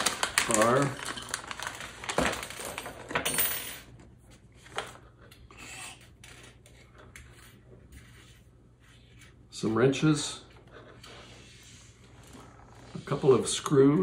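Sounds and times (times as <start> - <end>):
plastic bag crinkling: 0.0 - 3.2.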